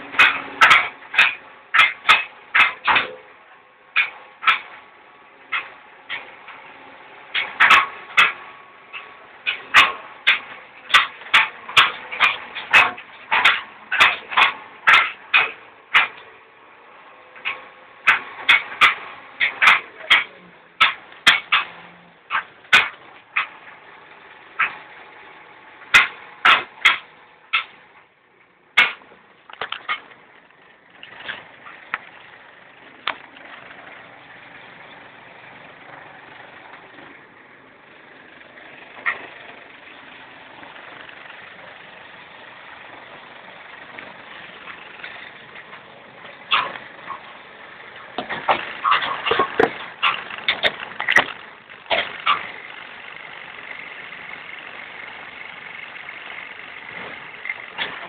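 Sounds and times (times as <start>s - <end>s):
sharp knocks and clunks: 0.0s - 3.3s, 7.3s - 16.4s, 17.4s - 23.9s, 25.8s - 27.8s, 28.8s - 37.2s, 42.7s - 53.2s
backhoe engine running: 0.0s - 58.0s.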